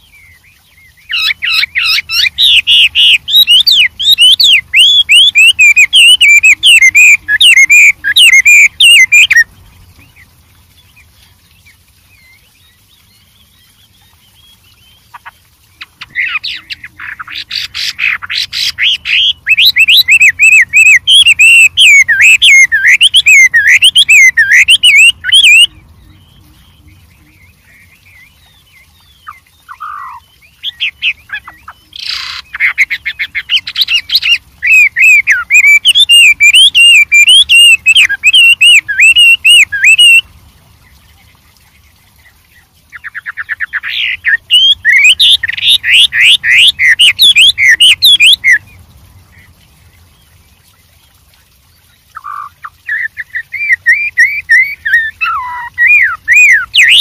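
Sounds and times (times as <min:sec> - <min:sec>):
bird singing whistled phrases: 0:00.0 - 0:09.5, 0:17.6 - 0:25.7, 0:32.1 - 0:40.2, 0:43.0 - 0:48.6, 0:52.2 - 0:57.0.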